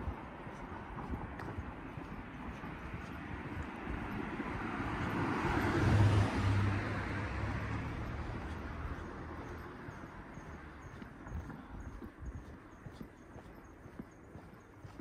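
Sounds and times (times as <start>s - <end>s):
car driving past: 4.4s - 9.6s.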